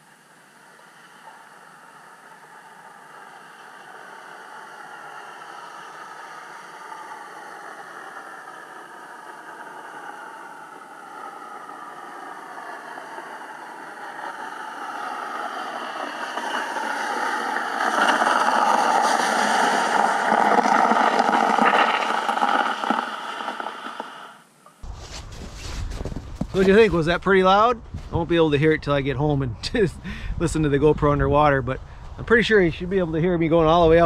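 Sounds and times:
atv engine heard underwater: 0.0 - 24.9.

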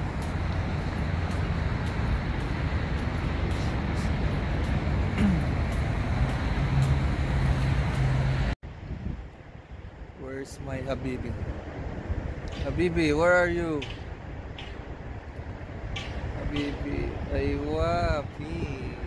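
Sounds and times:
vehicle engine hum: 0.0 - 8.8
road traffic rumble: 0.0 - 19.0.

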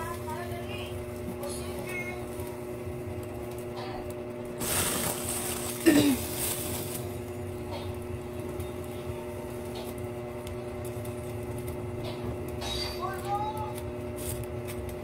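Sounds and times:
steady low hum: 0.0 - 15.0
plastic bag rustling: 4.6 - 7.4.

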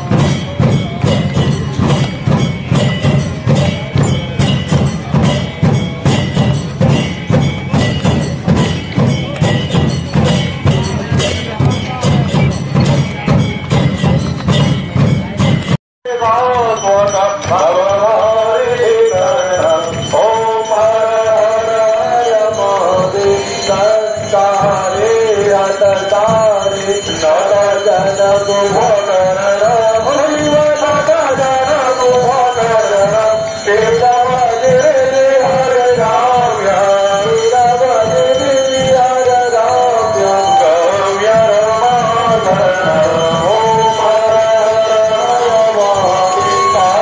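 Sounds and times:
steady percussion beat: 0.0 - 47.0
man singing devotional song: 16.0 - 47.0.

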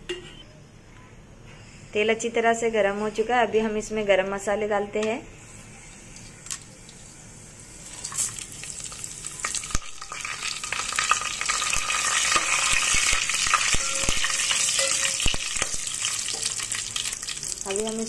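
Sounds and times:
spices sizzling in hot oil: 5.4 - 18.0.

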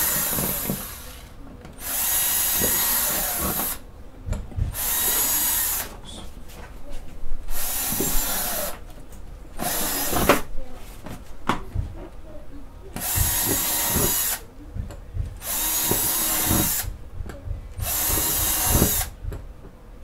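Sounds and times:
power drill whirring: 0.0 - 3.8, 4.7 - 6.1, 7.5 - 8.8, 9.6 - 10.5, 13.0 - 14.5, 15.4 - 17.0, 17.8 - 19.2.

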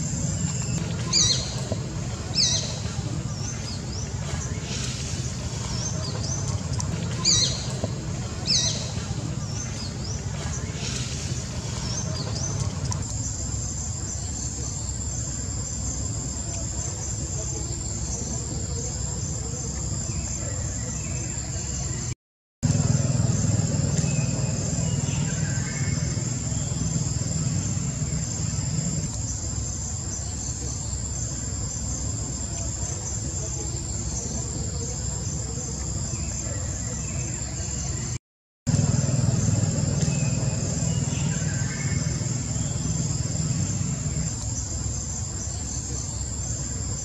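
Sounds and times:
insects droning: 0.0 - 47.0
low rumble: 22.6 - 29.1, 38.7 - 44.8.

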